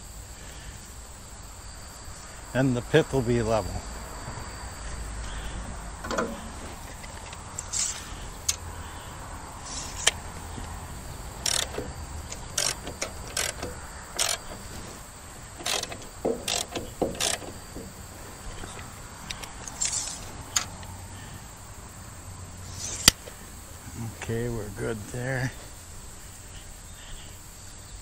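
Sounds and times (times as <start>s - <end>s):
metallic clacks of lifting mechanism: 6.0s - 8.6s, 11.4s - 20.9s.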